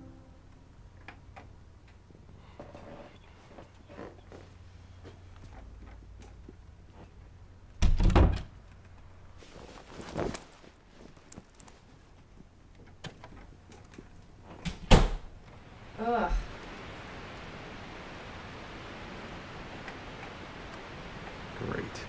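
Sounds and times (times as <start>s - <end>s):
faint low hum: 0.0s - 22.0s
door thudding shut: 7.8s - 8.5s, 14.6s - 15.3s.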